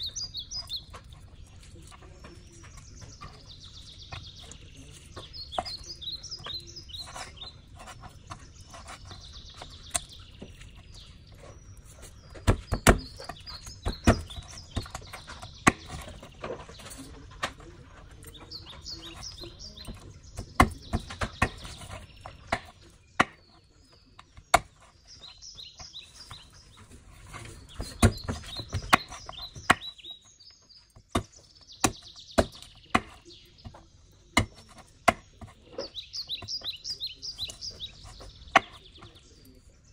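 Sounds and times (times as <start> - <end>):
knife chopping meat and bone: 0.0 - 39.2
birds chirping: 0.0 - 39.9.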